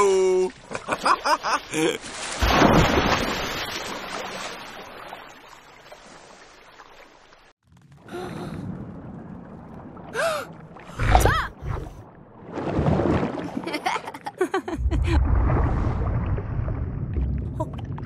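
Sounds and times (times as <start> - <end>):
big water splash: 2.0 - 7.2, 8.0 - 13.9, 14.8 - 18.0.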